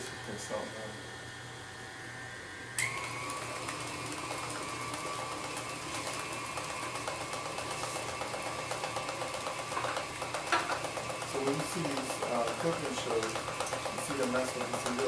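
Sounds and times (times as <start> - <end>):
stand mixer motor whine: 0.0 - 15.0
beater clattering in steel bowl: 4.2 - 15.0.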